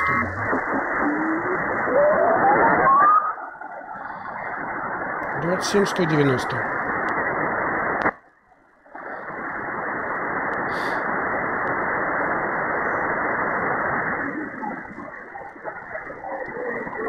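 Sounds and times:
radio static hiss: 0.0 - 17.0.

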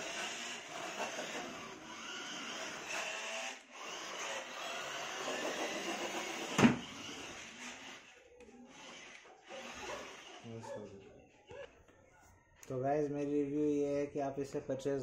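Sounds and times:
toy car motor whirring: 0.0 - 10.6.

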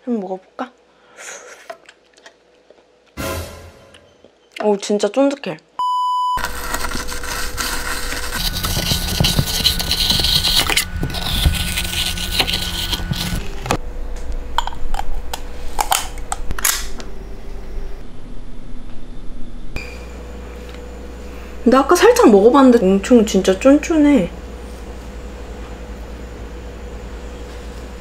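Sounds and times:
metal scoop scraping frozen gelato: 6.4 - 13.8.

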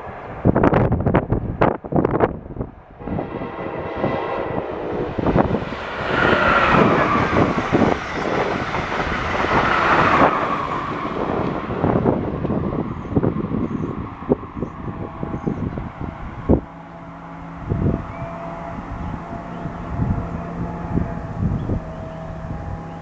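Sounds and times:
high steady train whine: 0.0 - 23.0
train wheels rumbling on rail: 0.0 - 23.0.

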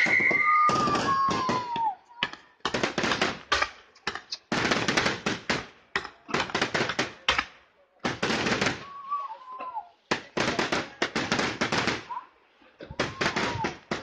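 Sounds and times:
fireworks whistles: 0.0 - 2.2, 8.4 - 9.8, 13.0 - 14.0
fireworks crackling bangs: 0.0 - 9.0, 10.0 - 12.2, 12.9 - 14.0.

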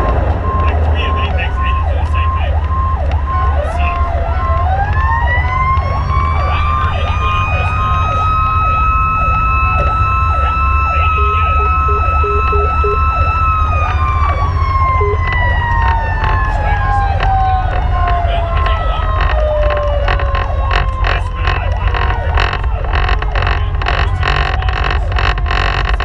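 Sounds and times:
yelping siren: 0.0 - 25.9
engine and road rumble: 0.0 - 26.0
wailing siren: 0.0 - 26.0
short repeating beep: 11.1 - 13.0, 15.0 - 15.3.

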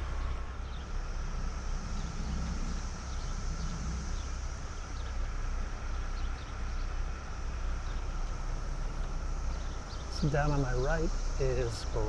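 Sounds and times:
street traffic rumble: 0.0 - 12.0.

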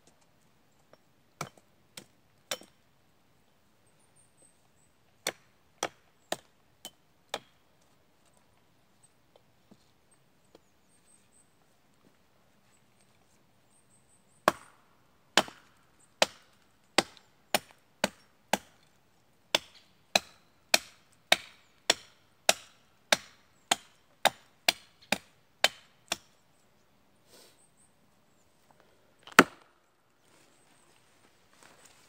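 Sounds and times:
hatchet chopping a branch: 5.2 - 7.6, 14.4 - 18.8, 19.5 - 26.4, 29.3 - 29.7.

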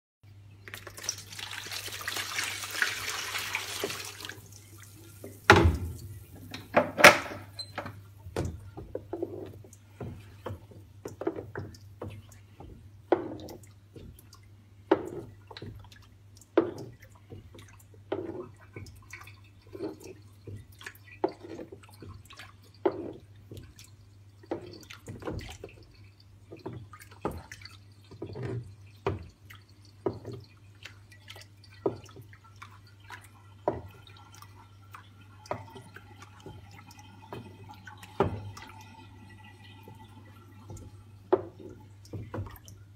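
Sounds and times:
liquid poured into a tray: 0.6 - 6.8
liquid sloshing in a tray: 0.6 - 42.9.

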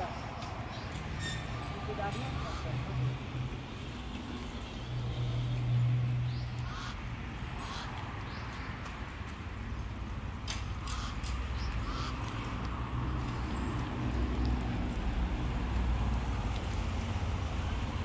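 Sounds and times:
low roadside rumble: 0.0 - 18.0
short bird calls: 6.6 - 7.0.

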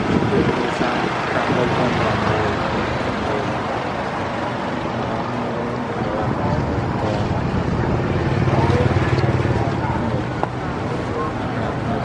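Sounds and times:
indistinct voices: 0.0 - 12.0
traffic and engines hum: 0.0 - 12.0.

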